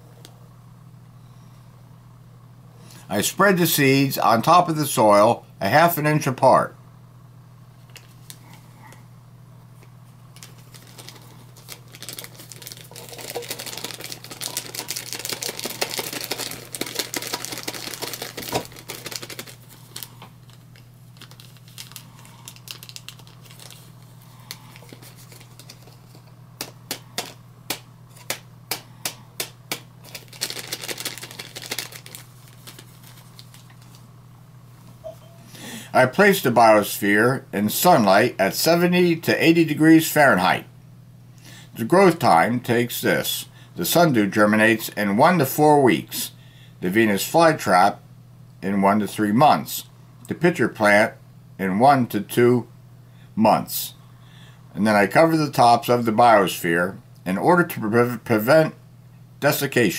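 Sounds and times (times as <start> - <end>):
low steady hum: 0.0 - 59.9
plastic packet crinkling: 10.3 - 28.4, 29.4 - 34.0.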